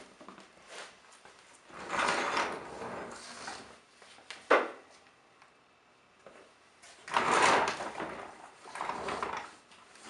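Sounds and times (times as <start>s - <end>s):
shop vac scraping on concrete: 1.7s - 3.8s, 7.0s - 10.0s.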